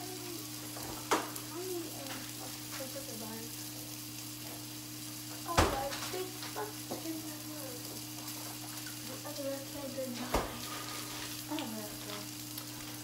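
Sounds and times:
food frying in pan: 0:00.0 - 0:13.0.

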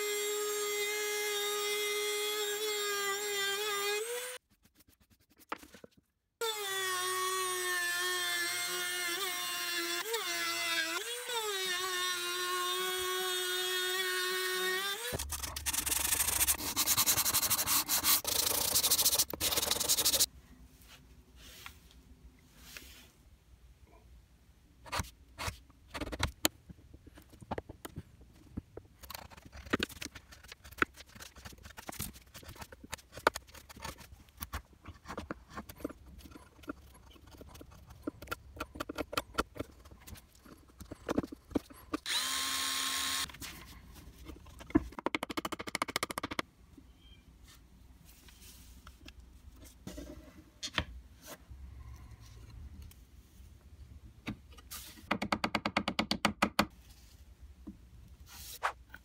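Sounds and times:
power tool running: 0:42.0 - 0:43.3.

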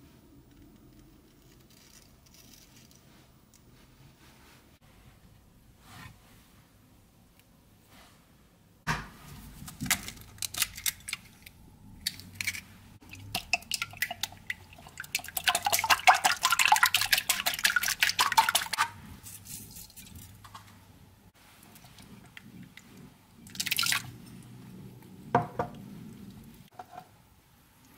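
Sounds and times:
whisk beating in a bowl: 0:13.1 - 0:19.0.

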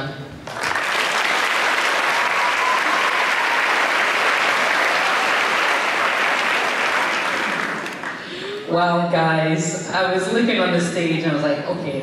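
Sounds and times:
audience applauding: 0:00.4 - 0:08.5.

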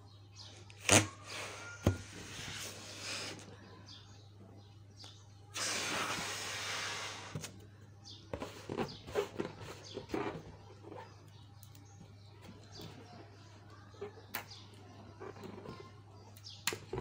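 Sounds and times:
balloon squeaking and rubbing: 0:00.8 - 0:03.4, 0:05.6 - 0:07.5, 0:08.4 - 0:11.2
balloon air hissing: 0:05.5 - 0:07.6.

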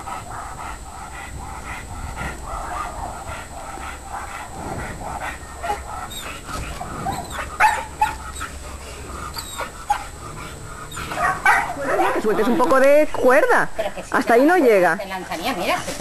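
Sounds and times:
dog yelping: 0:05.5 - 0:08.6, 0:09.3 - 0:10.2, 0:10.8 - 0:12.2
dog whining and yipping: 0:05.6 - 0:08.6, 0:09.3 - 0:10.1, 0:10.9 - 0:11.9.

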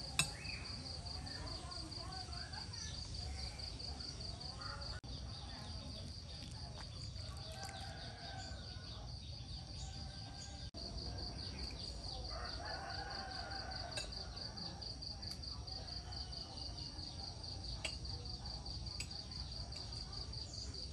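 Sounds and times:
insects chirping: 0:00.0 - 0:20.9
rooster crowing: 0:07.5 - 0:08.9, 0:12.3 - 0:14.4.

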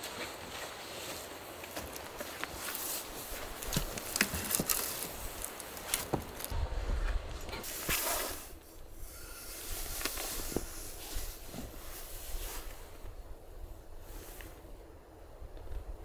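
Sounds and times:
footsteps: 0:00.0 - 0:08.3.

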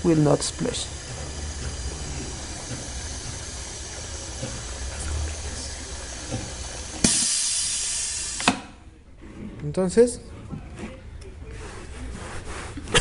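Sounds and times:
compressed air venting: 0:00.0 - 0:08.7
liquid filler machine humming: 0:00.0 - 0:08.9
air cylinder click: 0:06.3 - 0:08.8.

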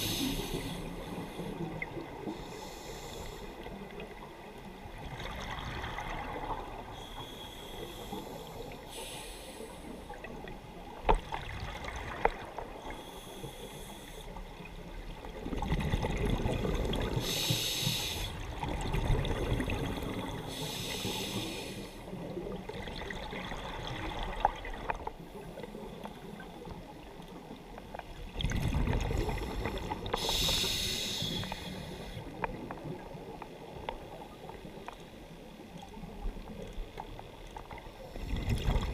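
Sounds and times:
diver breathing through regulator: 0:00.0 - 0:01.6, 0:02.3 - 0:03.6, 0:07.0 - 0:10.0, 0:12.9 - 0:14.3, 0:17.2 - 0:18.4, 0:20.4 - 0:22.1, 0:29.2 - 0:32.3.

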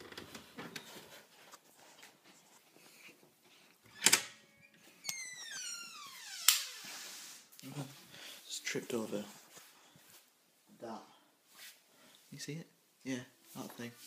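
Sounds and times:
door hinge creaking: 0:03.9 - 0:06.8.

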